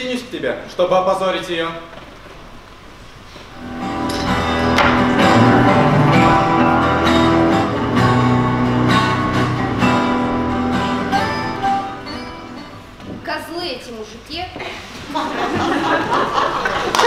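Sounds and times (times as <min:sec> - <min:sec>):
plucked and strummed guitar: 0:03.6 - 0:12.8
held low notes: 0:03.6 - 0:13.0.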